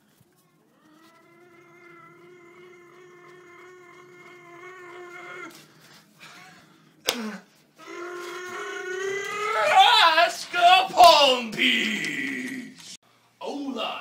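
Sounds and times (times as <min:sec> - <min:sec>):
boy yelling: 0:09.3 - 0:11.5.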